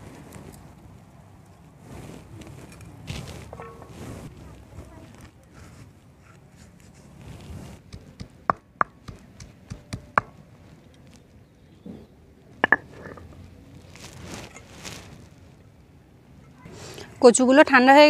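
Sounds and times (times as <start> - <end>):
stone knocking on board: 12.6 - 13.3
stone scraping across board: 12.6 - 13.4.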